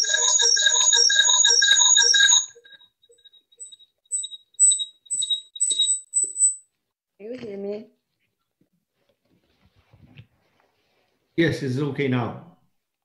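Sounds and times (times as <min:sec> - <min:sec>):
electronic alarm beeping rapidly: 0:00.0 - 0:06.6
faint high-pitched beeps: 0:00.0 - 0:06.6.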